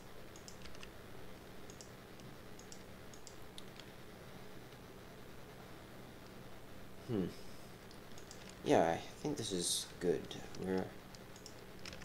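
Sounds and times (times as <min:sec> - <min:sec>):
low steady hum: 0:00.0 - 0:12.0
computer mouse and keyboard clicks: 0:00.3 - 0:00.9, 0:01.6 - 0:03.9, 0:07.9 - 0:08.6, 0:10.2 - 0:12.0.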